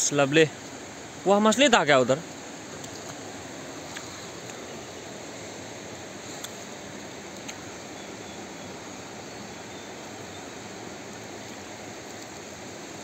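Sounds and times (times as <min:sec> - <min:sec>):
river flowing: 0:00.0 - 0:13.0.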